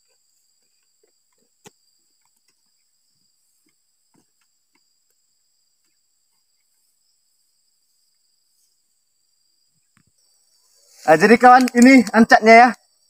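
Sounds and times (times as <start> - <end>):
high-pitched insect chorus: 0.0 - 13.0
sharp click: 11.4 - 12.2.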